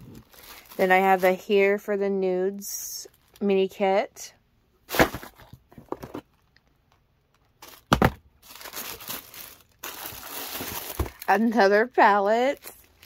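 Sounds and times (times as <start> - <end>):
plastic and paper crinkling: 0.0 - 1.8, 4.9 - 13.0.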